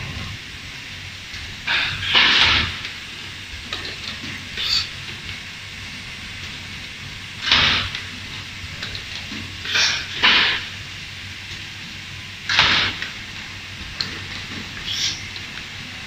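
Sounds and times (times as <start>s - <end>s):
low machine hum: 0.0s - 16.0s
compressed air hisses: 14.8s - 15.3s.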